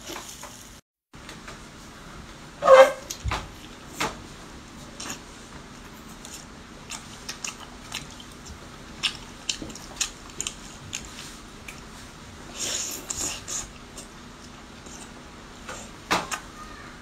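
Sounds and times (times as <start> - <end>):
biting and chewing food: 4.8 - 16.5.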